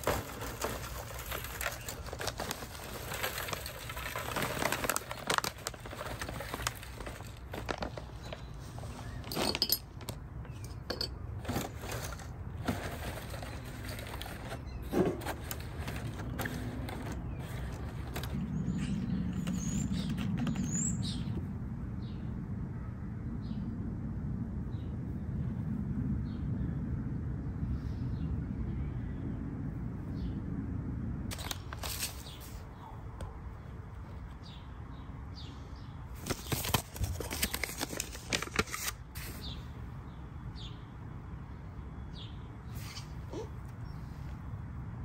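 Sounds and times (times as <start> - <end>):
paper packet crinkling and tearing: 0.0 - 9.6, 11.4 - 20.6, 31.3 - 32.6, 36.2 - 39.4
seeds crackling in packet: 0.0 - 9.7, 11.4 - 20.7, 31.3 - 32.6, 36.2 - 39.4
steady low rumble: 10.0 - 34.6
small birds chirping: 12.8 - 22.3, 39.3 - 44.5.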